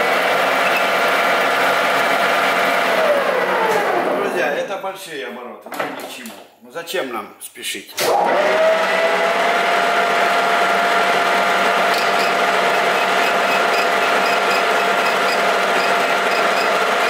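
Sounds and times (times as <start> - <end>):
lathe whine and hum: 0.0 - 4.2, 8.1 - 17.0.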